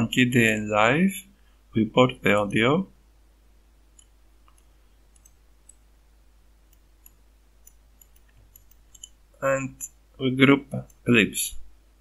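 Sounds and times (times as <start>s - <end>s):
computer mouse clicks: 3.9s - 5.8s, 6.7s - 9.2s.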